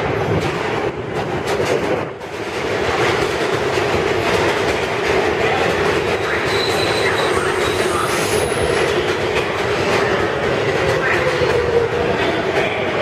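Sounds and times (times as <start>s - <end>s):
train wheels rumbling and clattering: 0.0s - 13.0s
high wheel squeal: 6.4s - 8.8s.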